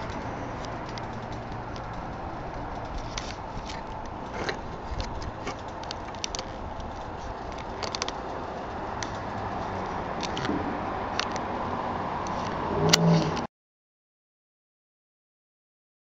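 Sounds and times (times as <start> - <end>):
camera handling clicks and taps: 7.5 - 8.2.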